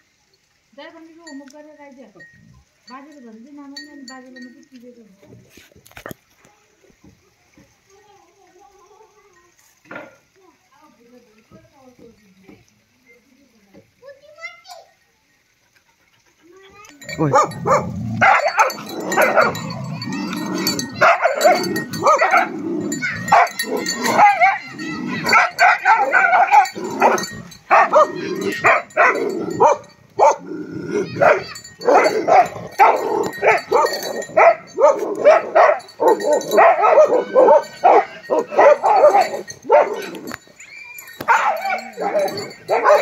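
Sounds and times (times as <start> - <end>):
dogs barking: 17.0 - 43.0.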